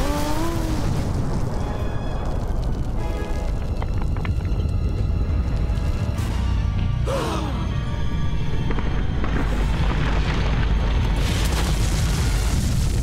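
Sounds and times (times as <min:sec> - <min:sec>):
deep rumble of collapsing masonry: 0:00.1 - 0:06.2, 0:07.8 - 0:13.0
music playing: 0:03.0 - 0:10.5.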